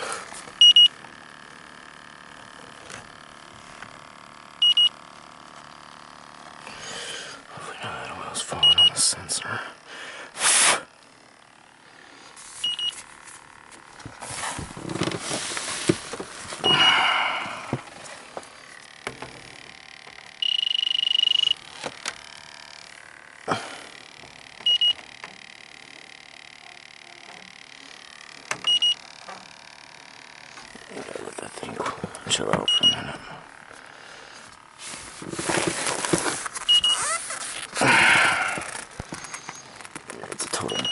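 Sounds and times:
leak detector beeping: 0.4 - 1.1, 4.5 - 5.1, 8.4 - 9.7, 12.4 - 13.8, 16.6 - 18.0, 18.7 - 30.9, 32.6 - 33.9, 35.4 - 39.9, 40.6 - 40.9
rustling and handling noise: 12.2 - 16.7, 34.4 - 40.9.

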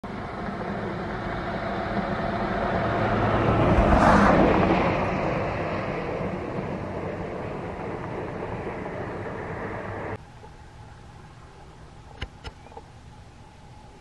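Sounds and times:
vehicle passing by: 0.1 - 10.2
low steady hum: 4.6 - 14.0.

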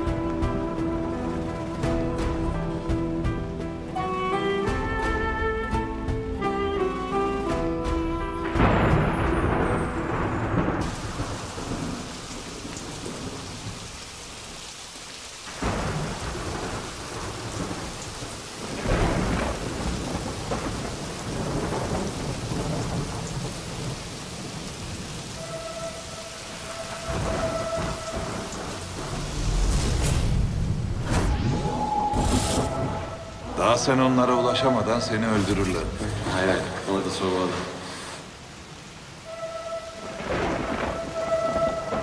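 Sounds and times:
steady rain: 0.0 - 42.0
thunder rolling: 8.4 - 13.8, 15.5 - 25.5, 26.1 - 35.7, 39.3 - 42.0.

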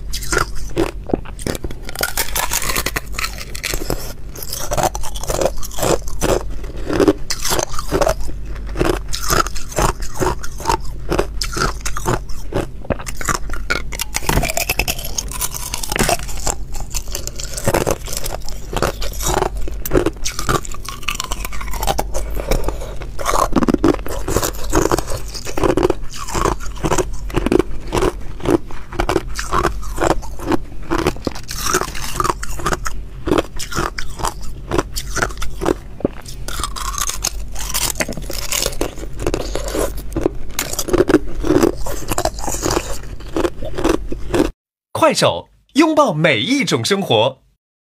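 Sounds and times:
ice crunching while chewed: 0.0 - 44.6.

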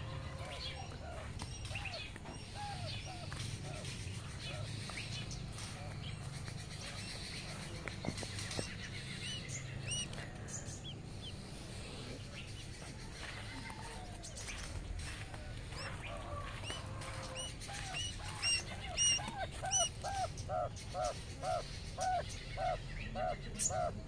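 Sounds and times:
quail chick peeping: 0.0 - 24.0
mother quail calling: 9.1 - 11.4, 15.8 - 24.0.

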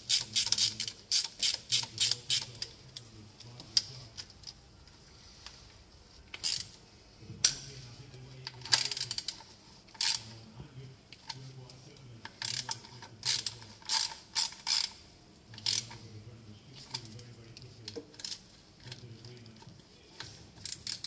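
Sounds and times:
ratchet wrench clicking: 0.0 - 2.5, 12.4 - 15.0, 15.6 - 16.0.

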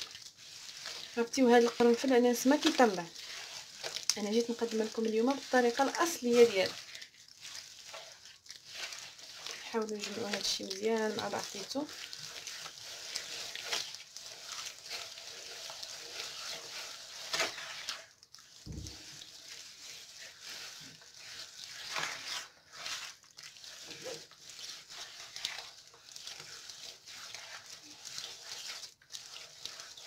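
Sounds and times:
hand kneading wet dough: 0.0 - 30.0.

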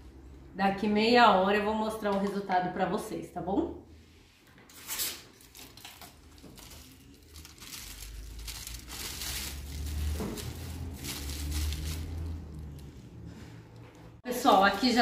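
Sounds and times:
aluminium foil crinkling: 4.8 - 12.9.

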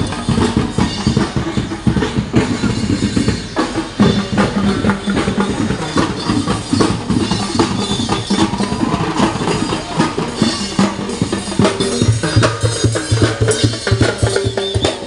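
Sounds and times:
drum band playing: 0.0 - 15.0.

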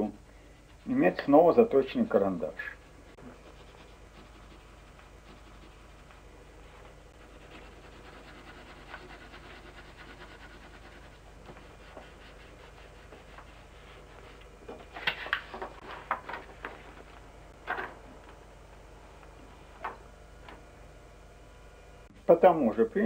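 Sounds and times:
pencil scratching on paper: 2.8 - 6.2, 7.2 - 14.4.

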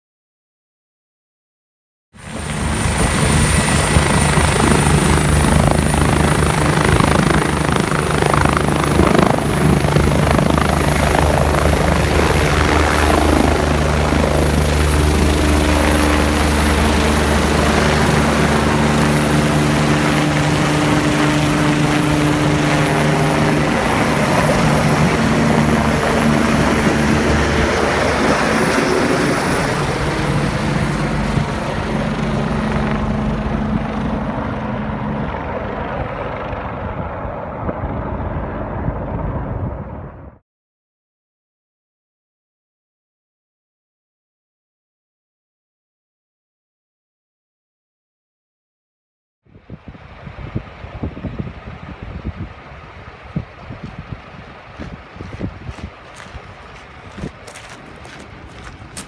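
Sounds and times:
helicopter turbine and rotor: 2.2 - 40.4, 49.6 - 59.0
high turbine whine: 2.2 - 40.4.

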